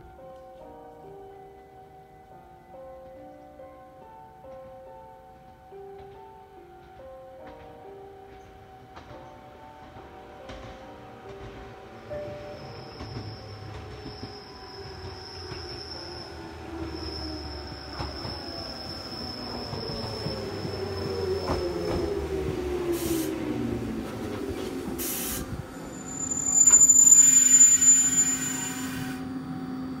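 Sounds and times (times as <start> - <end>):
high brake squeal: 12.4 - 21.5, 25.0 - 29.4
short air hisses: 23.0 - 23.4, 25.0 - 25.5.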